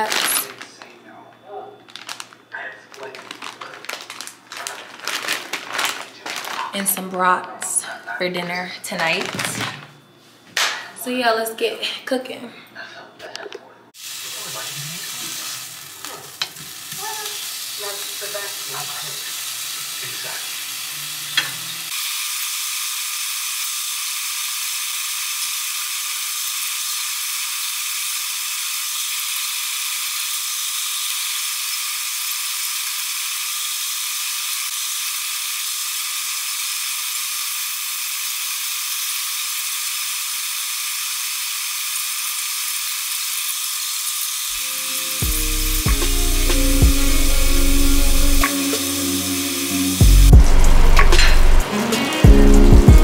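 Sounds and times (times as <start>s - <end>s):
sausage sizzling in a pan: 14.0s - 52.7s.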